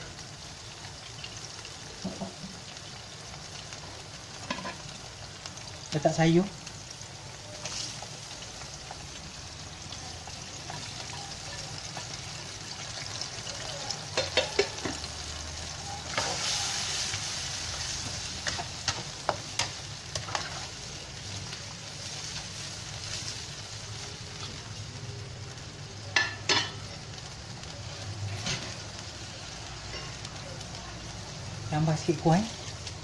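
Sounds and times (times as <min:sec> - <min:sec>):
gravy bubbling in a wok: 0:00.0 - 0:33.0
spatula scraping a wok: 0:16.0 - 0:21.0, 0:28.3 - 0:29.0.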